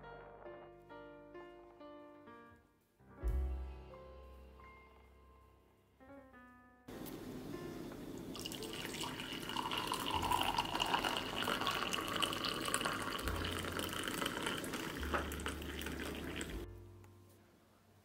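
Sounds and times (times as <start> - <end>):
water pouring into a mug: 8.3 - 16.7.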